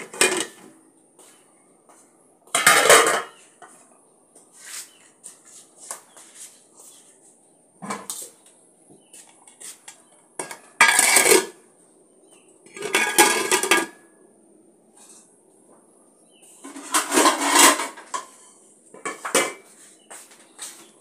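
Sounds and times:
metal lid clattering on pot: 0:00.0 - 0:00.6, 0:02.6 - 0:03.4, 0:10.4 - 0:11.6, 0:12.7 - 0:14.0, 0:16.6 - 0:18.4, 0:19.0 - 0:19.6.

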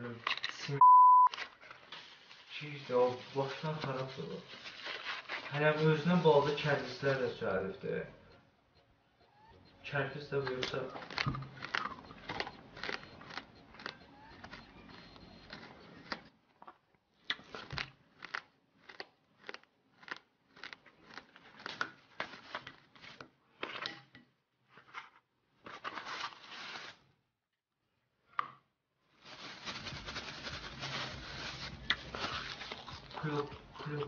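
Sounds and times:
packaging crinkling and tearing: 0:00.0 - 0:07.3, 0:10.4 - 0:16.2, 0:25.7 - 0:27.0, 0:29.2 - 0:34.0.

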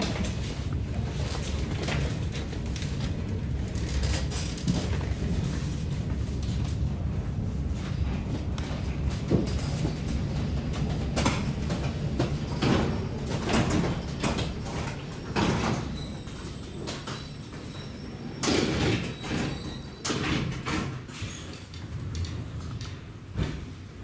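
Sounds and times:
low train rumble: 0:00.0 - 0:24.0
train carriage clunks and knocks: 0:07.7 - 0:24.0.

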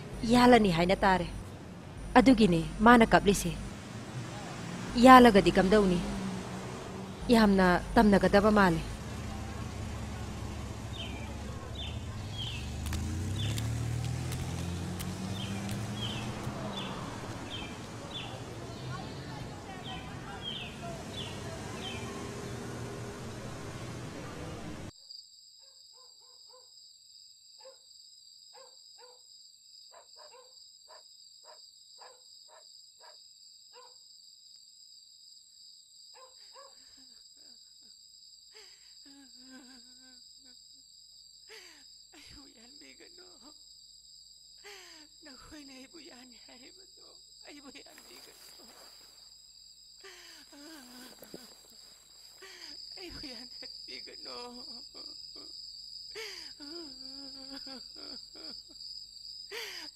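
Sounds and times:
bird chirping: 0:00.0 - 0:13.7, 0:15.1 - 0:24.9
vehicle engine hum: 0:00.0 - 0:24.9
crickets trilling: 0:00.1 - 0:24.2, 0:33.8 - 0:59.9.

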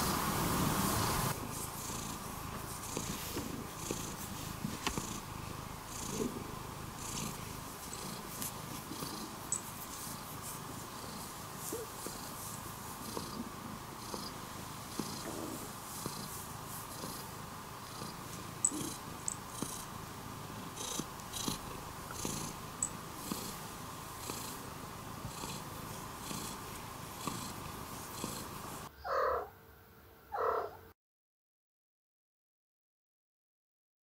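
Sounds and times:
cat purring: 0:00.0 - 0:29.5.

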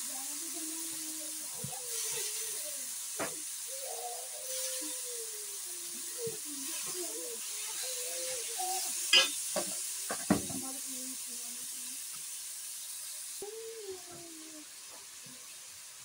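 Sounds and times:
noodles sizzling in a wok: 0:00.0 - 0:16.0
utensil knocks on a wok: 0:09.2 - 0:10.7.

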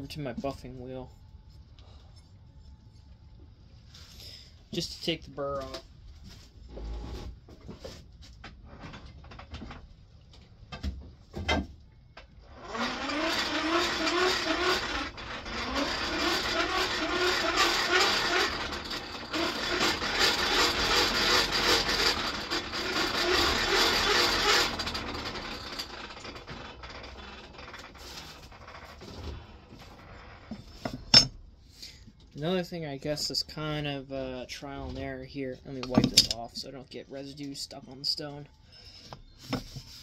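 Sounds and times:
electric buffing wheel running: 0:12.6 - 0:27.9.

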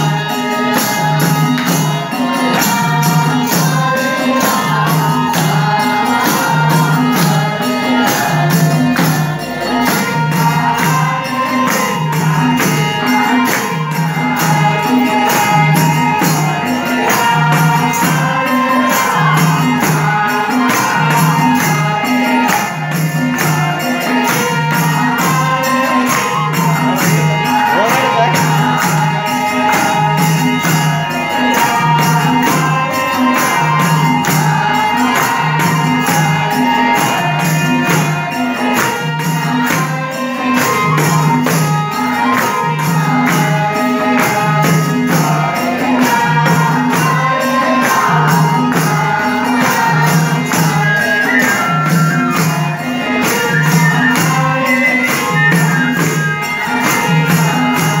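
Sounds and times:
harmonium: 0:00.0 - 0:58.0
jingling percussion: 0:00.0 - 0:58.0.

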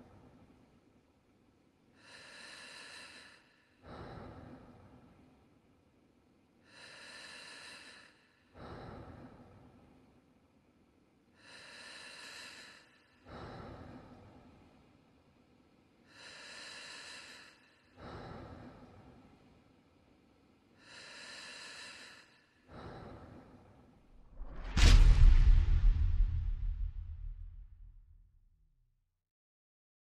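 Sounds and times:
person breathing deeply: 0:01.9 - 0:05.6, 0:06.6 - 0:10.3, 0:11.3 - 0:15.1, 0:16.0 - 0:25.0.

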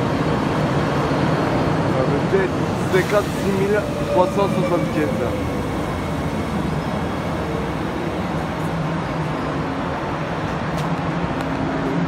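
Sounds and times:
train wheels rumbling: 0:00.0 - 0:12.0.

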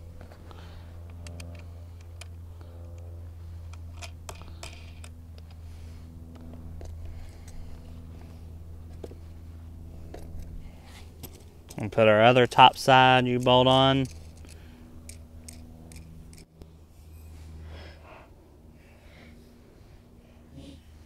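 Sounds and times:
steady low hum: 0:00.0 - 0:21.0
small metallic clicks and taps: 0:01.0 - 0:03.1.

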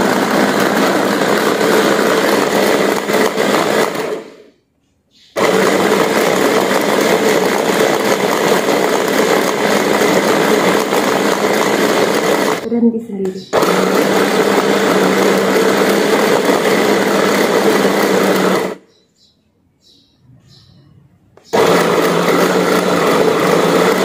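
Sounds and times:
blender chopper motor running: 0:00.0 - 0:04.5, 0:05.4 - 0:12.7, 0:13.5 - 0:18.8, 0:21.5 - 0:24.0.

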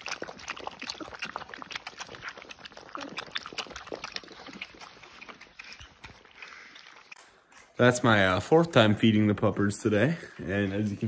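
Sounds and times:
puppies lapping milk: 0:00.0 - 0:07.6.

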